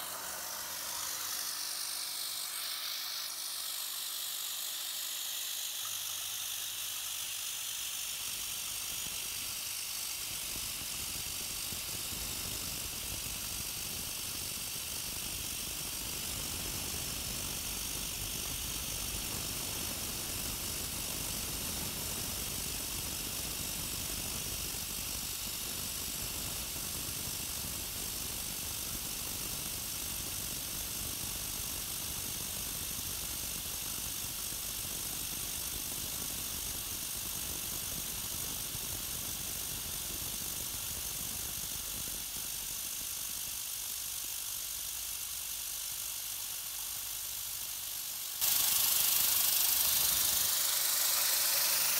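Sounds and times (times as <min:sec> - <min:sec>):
spindle motor running: 0:00.0 - 0:26.7, 0:28.1 - 0:51.9
milling cutter hissing: 0:00.0 - 0:51.9.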